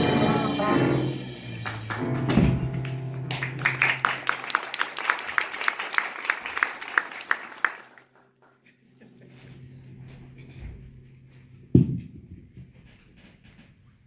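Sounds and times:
live band playing: 0.0 - 4.5
audience applause: 1.6 - 8.6
nearby person clapping: 1.6 - 8.6.

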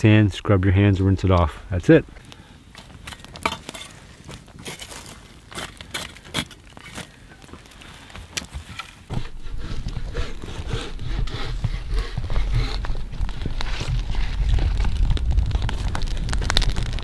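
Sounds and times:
campfire burning and crackling: 1.2 - 17.0
knocks and scrapes: 2.8 - 7.1, 8.4 - 17.0.

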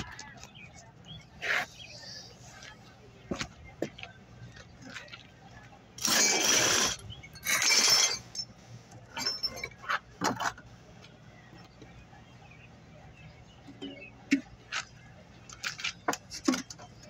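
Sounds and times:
metal parts rattling: 6.0 - 8.5, 9.1 - 10.6.

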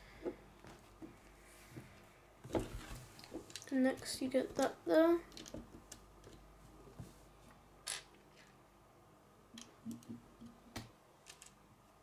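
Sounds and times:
plastic toy bricks clicking: 11.2 - 11.6.

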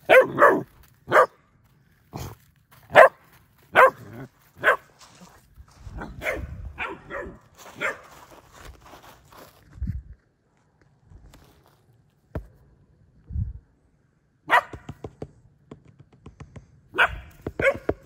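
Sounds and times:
puppy barking: 0.0 - 1.4, 2.9 - 4.9, 6.0 - 8.1, 14.5 - 14.9, 16.9 - 18.0.

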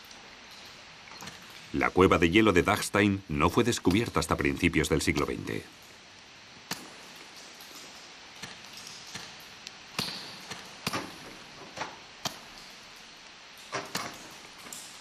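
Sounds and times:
steady hiss: 0.0 - 15.0
sharp knocks with echo: 8.4 - 11.5.

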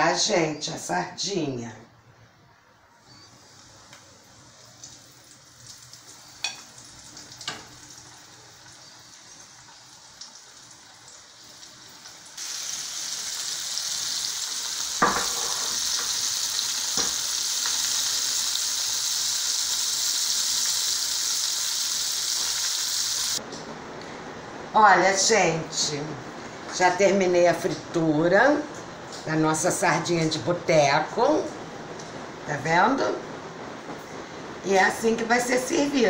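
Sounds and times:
fish sizzling in hot oil: 4.6 - 23.4.

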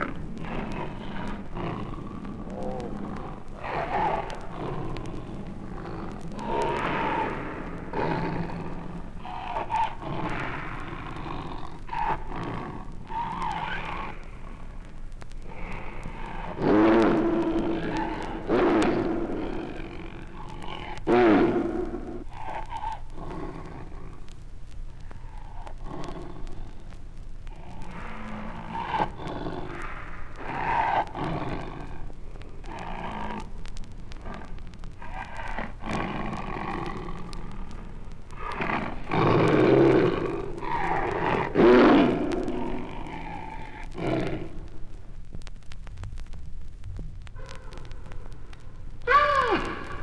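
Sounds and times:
tiger growling and snarling: 0.0 - 14.2, 15.4 - 24.0, 34.1 - 44.5.

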